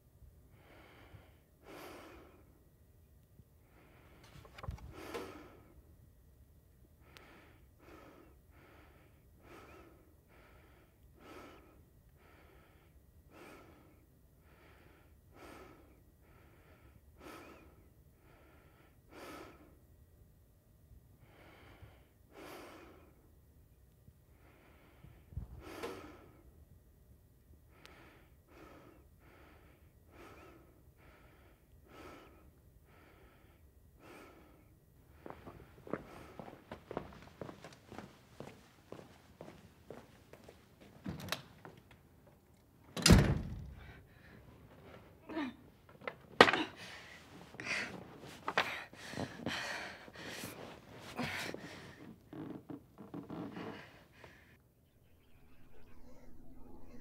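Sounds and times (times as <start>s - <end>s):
person breathing hard: 0.5s - 2.6s, 7.0s - 19.8s, 21.2s - 23.3s, 27.7s - 36.7s, 46.6s - 52.2s.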